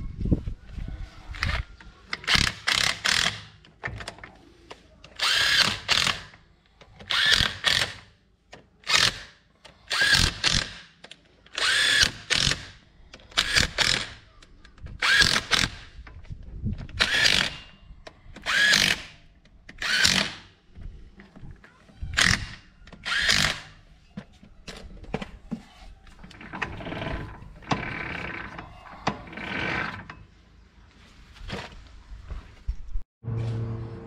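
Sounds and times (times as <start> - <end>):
power drill motor whine: 23.0 - 23.6.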